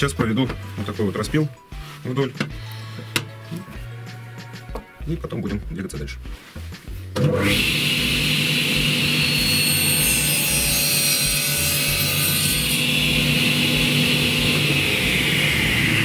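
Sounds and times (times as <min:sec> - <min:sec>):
table saw cutting wood: 0:07.2 - 0:16.0.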